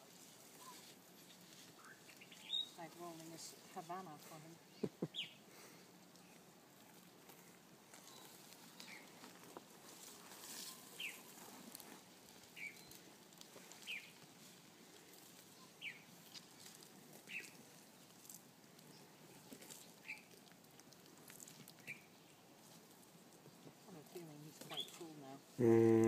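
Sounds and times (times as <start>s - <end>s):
bird chirping: 1.8s - 2.8s, 4.6s - 5.4s, 24.6s - 25.0s.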